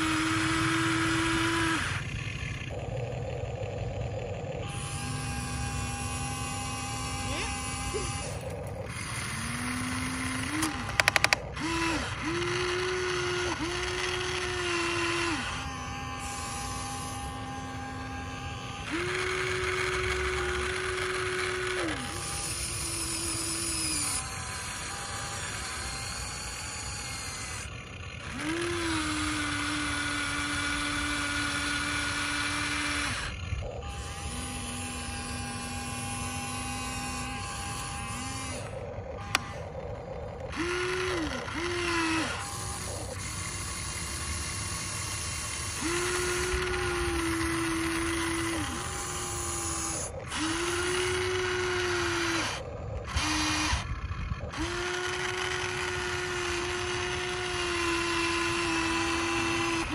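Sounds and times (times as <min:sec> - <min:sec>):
small electric motors whining: 0:00.0 - 0:59.9
rattle of clicks: 0:10.5 - 0:11.7.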